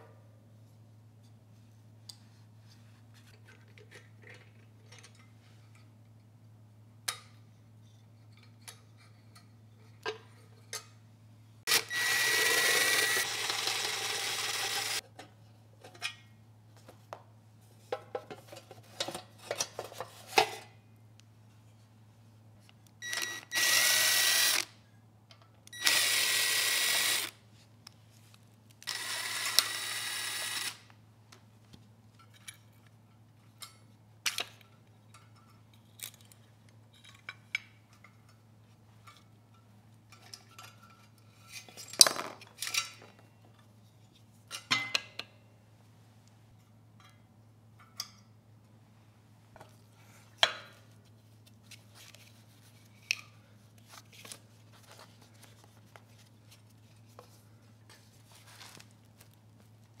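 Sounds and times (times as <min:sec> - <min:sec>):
cordless drill running: 0:11.7 - 0:15.0, 0:23.1 - 0:24.7, 0:25.8 - 0:27.4, 0:28.8 - 0:30.8.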